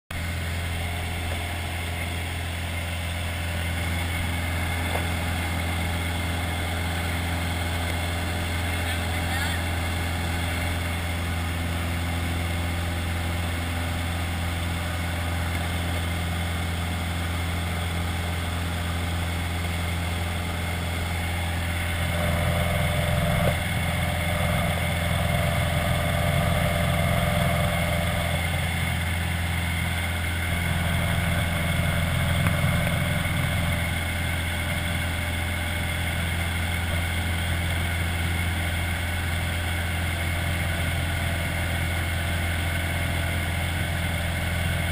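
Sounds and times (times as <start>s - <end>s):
light aircraft engine and propeller: 0.1s - 44.9s.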